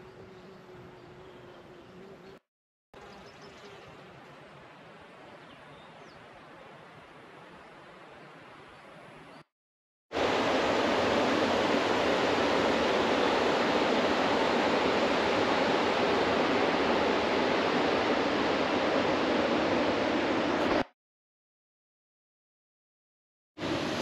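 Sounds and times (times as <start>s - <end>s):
loud steady rushing noise: 10.2s - 20.9s, 23.6s - 24.0s.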